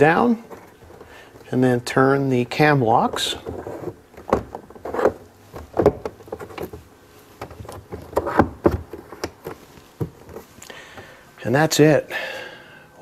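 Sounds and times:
knocks and clunks of panel: 3.1 - 6.8, 7.4 - 10.5.

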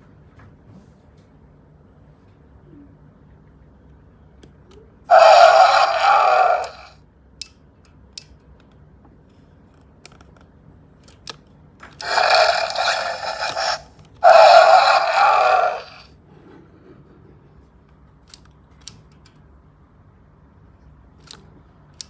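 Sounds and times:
toy electronic roar: 5.1 - 7.0, 12.0 - 16.1.

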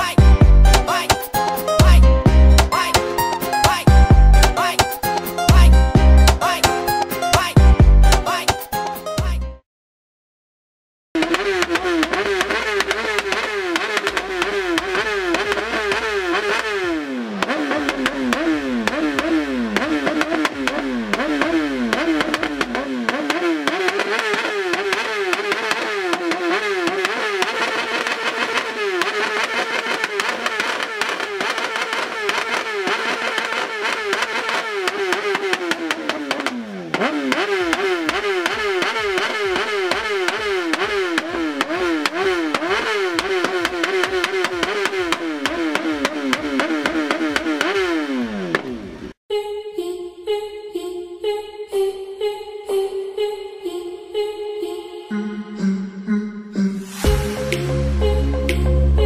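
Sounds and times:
motorcycle engine at rev limiter: 11.2 - 49.2.

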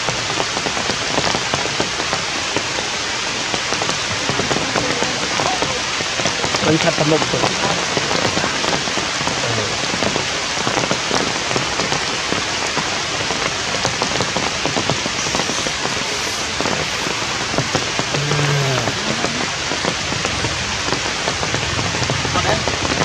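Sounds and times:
rain falling on leaves: 0.0 - 23.0.

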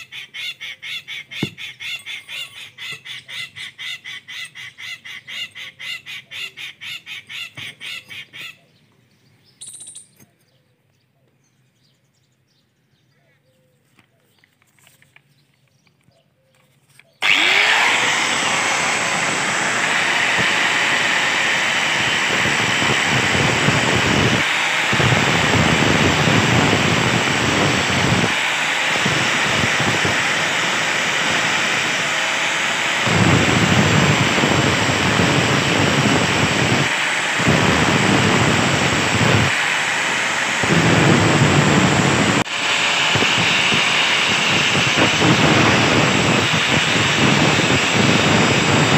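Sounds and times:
angle grinder grinding metal: 17.2 - 48.9.

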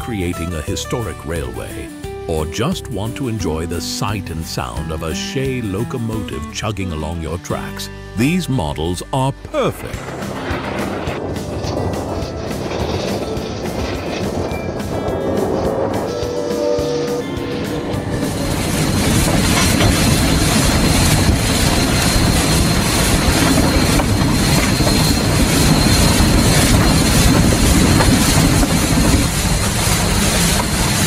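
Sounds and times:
train cars rumbling on track: 9.4 - 31.0
thin high whine: 10.0 - 29.2.

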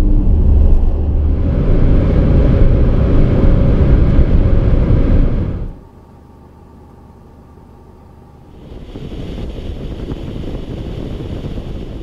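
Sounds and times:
wind and tyre noise: 0.0 - 5.8, 8.5 - 12.0
low cabin hum: 0.0 - 12.0.

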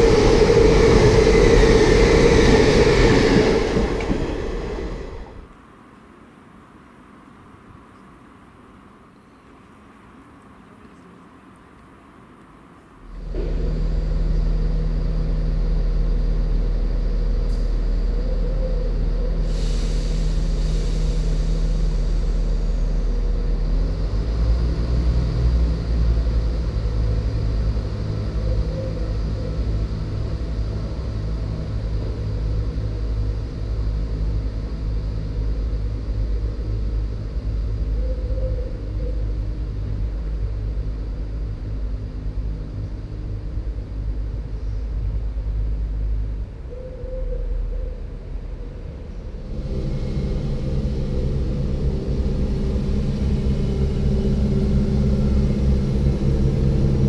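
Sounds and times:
hiss of air: 0.0 - 5.6, 19.3 - 23.9
diesel train engines running: 0.0 - 6.2, 12.6 - 57.0.

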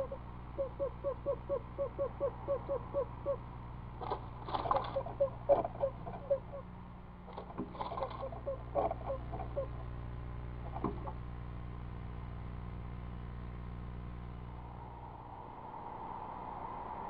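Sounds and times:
owl soft chug notes: 0.0 - 6.8, 7.4 - 9.9
steady electrical hum: 0.0 - 17.0
steady outdoor hiss: 0.0 - 17.0.

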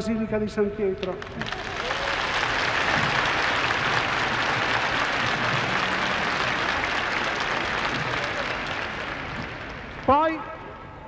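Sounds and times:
crowd applauding: 1.0 - 10.7.

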